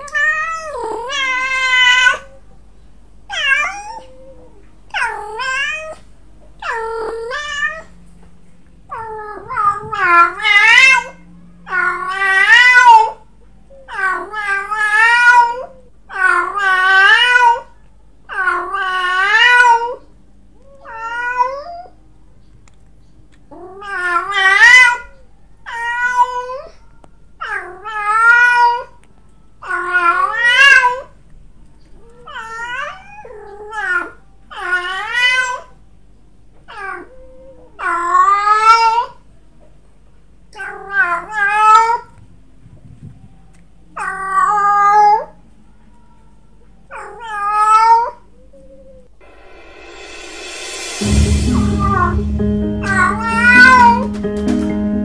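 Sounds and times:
cat yowling: 0.0 - 2.4, 3.3 - 6.0, 6.6 - 7.9, 8.9 - 17.7, 18.3 - 20.0, 20.6 - 22.0, 23.5 - 26.8, 27.4 - 29.0, 29.6 - 31.2, 32.0 - 35.8, 36.7 - 39.2, 40.6 - 42.1, 44.0 - 45.4, 46.9 - 49.1.

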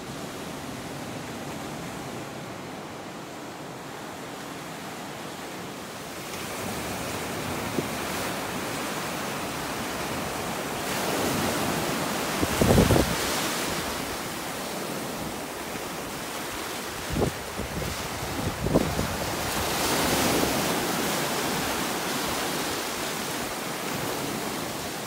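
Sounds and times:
ocean surf on a beach: 0.0 - 25.0
wind buffeting microphone: 11.0 - 14.1, 16.9 - 22.1.

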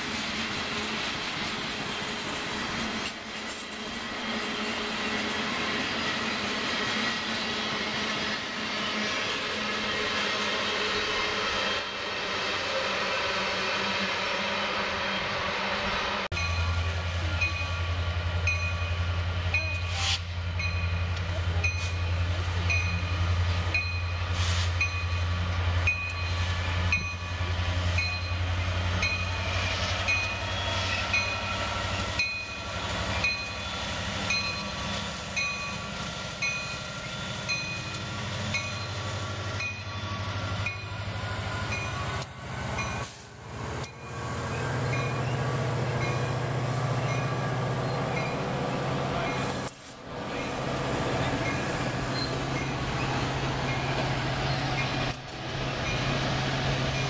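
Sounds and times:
locomotive engines humming: 0.0 - 57.0.

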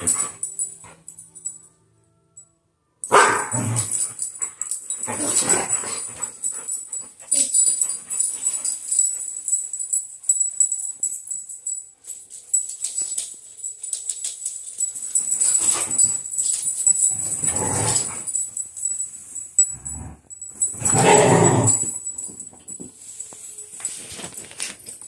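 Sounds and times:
dogs barking excitedly: 3.1 - 3.7
dogs scuffling: 20.9 - 25.0.

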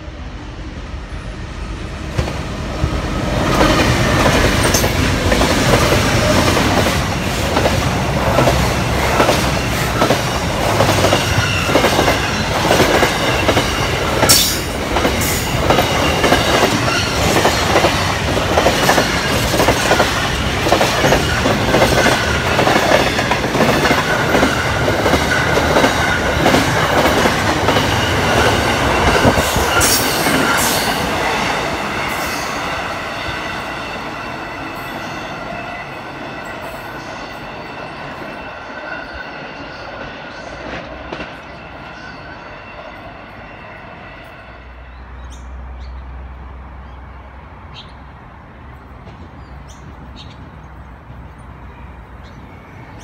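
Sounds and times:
diesel locomotives passing: 0.0 - 53.0.

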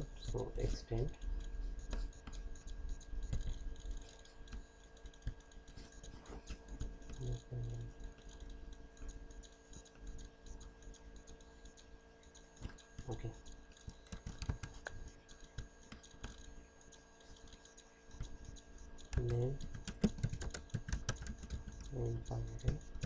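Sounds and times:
low electrical hum: 0.0 - 23.0
computer mouse clicks: 0.2 - 23.0
keyboard key taps: 13.9 - 15.0, 19.1 - 21.8.

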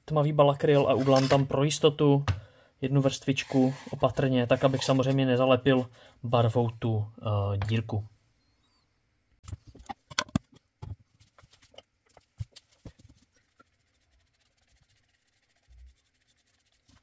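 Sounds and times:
brush scraping inside wooden box: 3.4 - 5.2.

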